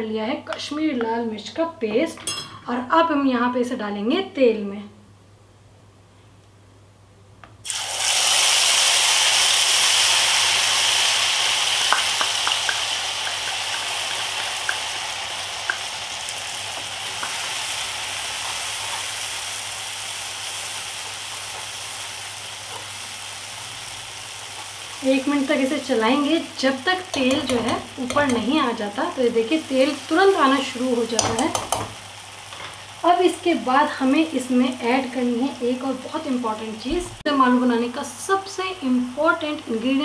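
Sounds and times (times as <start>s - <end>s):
paste sizzling in hot oil: 7.6s - 36.7s
oil popping: 11.5s - 17.6s.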